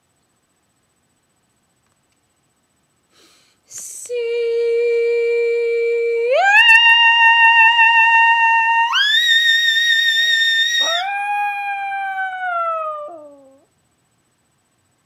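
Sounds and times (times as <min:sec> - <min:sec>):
dog howling: 0:06.4 - 0:13.7.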